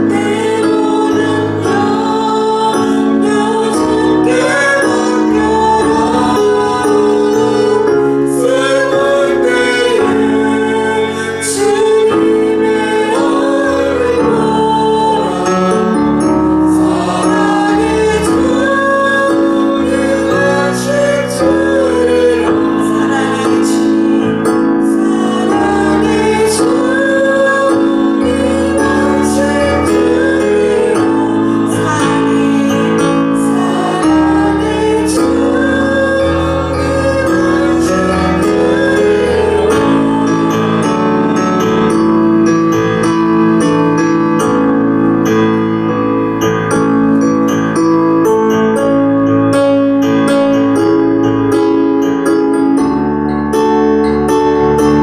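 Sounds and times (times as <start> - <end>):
people singing worship song: 0.0 - 43.3
keyboard sustained chords: 0.0 - 55.0.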